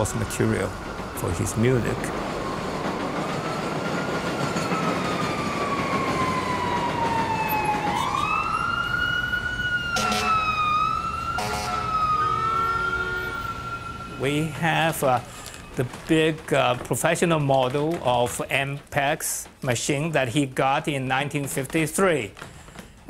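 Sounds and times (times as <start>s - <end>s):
street noise: 0.0s - 23.0s
siren wailing: 2.0s - 15.8s
short horn blasts: 10.0s - 10.4s, 11.4s - 13.5s.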